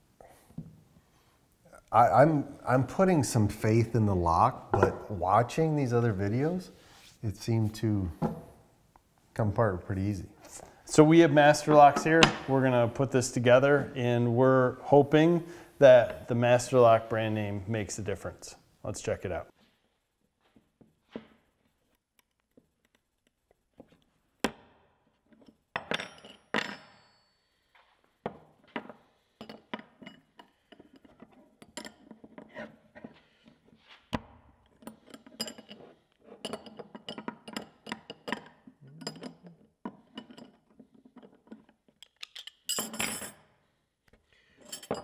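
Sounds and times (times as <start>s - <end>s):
wrenches clattering onto wooden bench: 28.3s - 32.5s, 34.8s - 43.4s, 44.6s - 45.0s
wrenches clinking against padlock: 34.8s - 35.8s, 36.4s - 40.6s, 42.0s - 43.4s, 44.6s - 45.0s.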